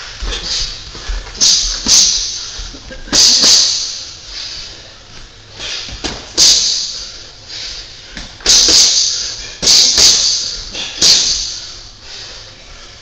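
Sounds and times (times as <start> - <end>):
boxing gloves smacking mitts: 5.8 - 6.8.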